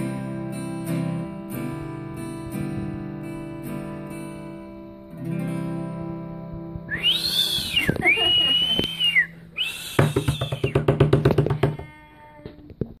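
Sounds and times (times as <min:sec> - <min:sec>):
acoustic guitar chord: 0:00.0 - 0:10.2
person whistling: 0:06.9 - 0:10.9.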